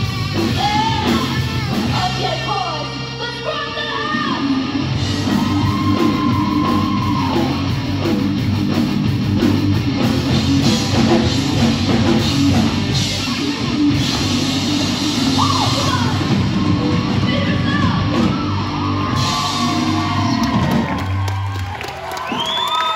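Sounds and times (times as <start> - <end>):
heavy rock band playing: 0.0 - 22.6.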